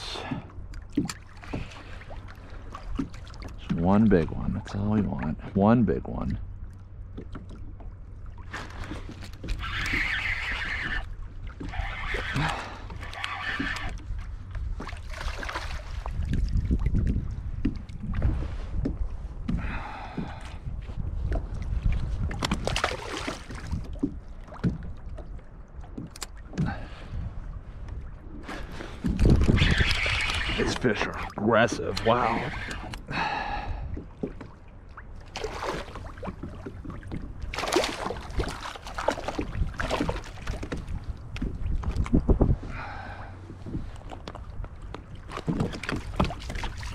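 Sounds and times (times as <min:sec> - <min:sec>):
water slapping kayak hull: 0:00.0 - 0:46.9
wind buffeting microphone: 0:10.7 - 0:34.5, 0:35.5 - 0:46.9.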